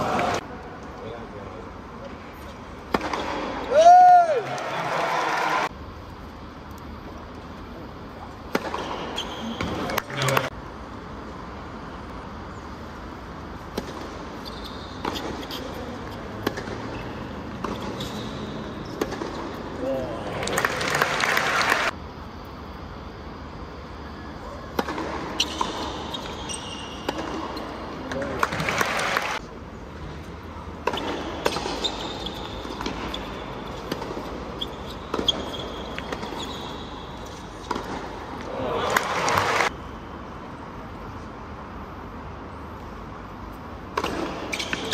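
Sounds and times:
quiet stadium crowd: 0.0s - 44.9s
tennis racquet striking ball: 2.8s - 3.6s, 8.5s - 10.5s, 19.0s - 19.6s, 24.7s - 26.0s, 27.0s - 29.1s, 30.8s - 32.0s, 32.6s - 34.5s, 35.1s - 36.7s, 37.6s - 38.2s
shoe squeaks on court: 8.8s - 9.9s, 14.4s - 15.9s, 16.9s - 19.0s, 25.3s - 27.8s, 31.0s - 37.7s, 44.4s - 44.9s.

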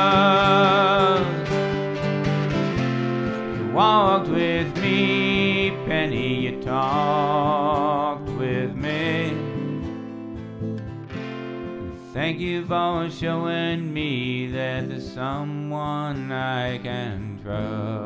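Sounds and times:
acoustic guitar: 0.0s - 18.0s
person singing country song: 0.0s - 18.0s.

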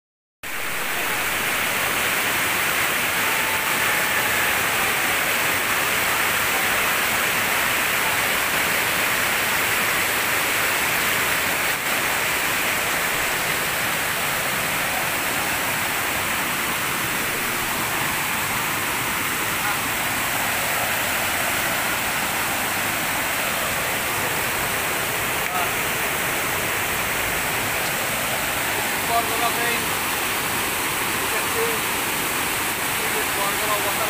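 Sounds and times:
waterfall rushing over boulders: 0.4s - 34.0s.

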